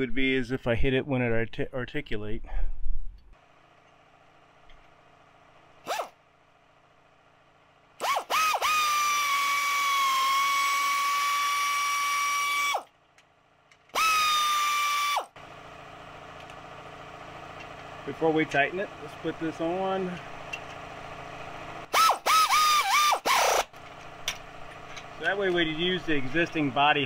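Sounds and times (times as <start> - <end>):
power driver whining: 5.8 - 6.2, 8.0 - 13.0, 13.7 - 15.5, 16.3 - 27.0.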